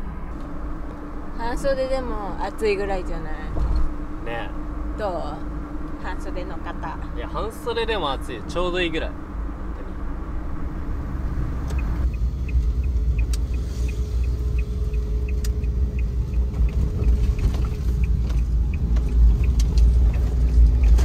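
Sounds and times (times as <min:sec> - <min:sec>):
van engine and road rumble: 0:00.0 - 0:21.0
light even ticking: 0:11.6 - 0:21.0.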